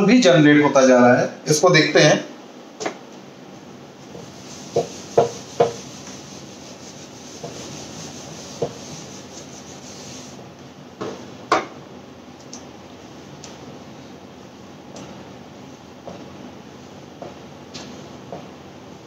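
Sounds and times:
eraser rubbing on whiteboard: 4.1s - 10.4s.

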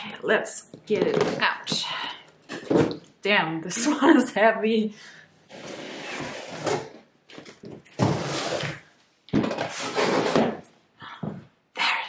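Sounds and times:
cardboard scraping and rustling: 5.5s - 10.6s.

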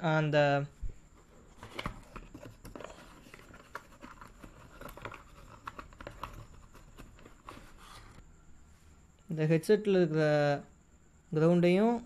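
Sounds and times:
faint clicks and rustles: 0.9s - 8.2s.

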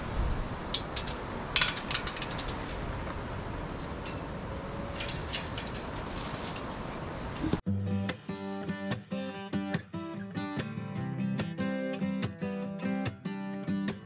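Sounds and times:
steady background hiss: 0.0s - 7.6s.

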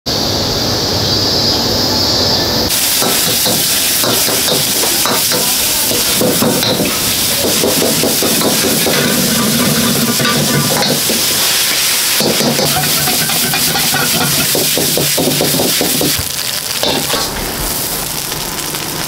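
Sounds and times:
wok hissing: 0.1s - 19.0s
food sizzling: 0.3s - 19.0s
metal utensils clanking in wok: 2.8s - 16.2s, 16.8s - 17.8s.

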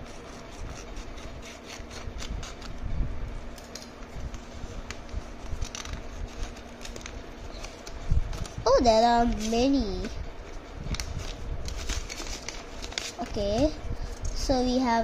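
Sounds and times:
paper rustling and crinkling: 4.2s - 10.2s, 10.8s - 13.7s.

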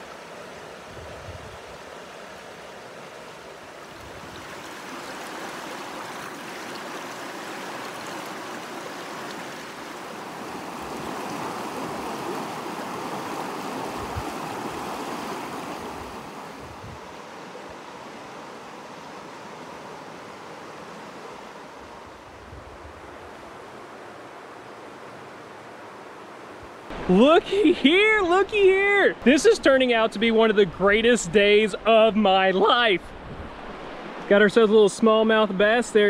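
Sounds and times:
water rushing over rocks: 1.8s - 17.6s, 26.9s - 35.8s.

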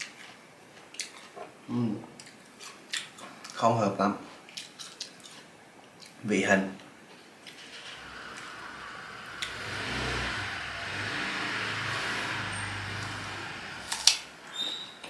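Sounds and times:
vehicle passing: 7.6s - 14.6s.

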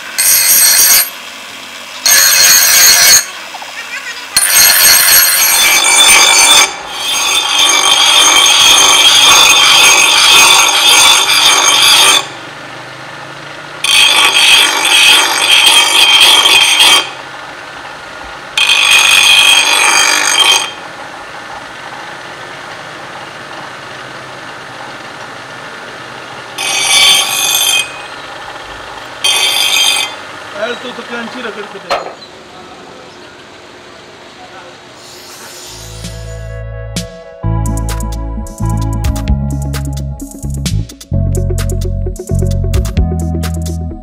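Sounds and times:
grinder grinding steel blade: 0.0s - 1.3s, 2.0s - 3.6s, 4.2s - 12.4s, 13.8s - 17.3s, 18.6s - 20.9s, 26.5s - 32.2s, 35.0s - 36.5s
bench grinder humming: 0.0s - 33.5s, 34.8s - 36.6s.

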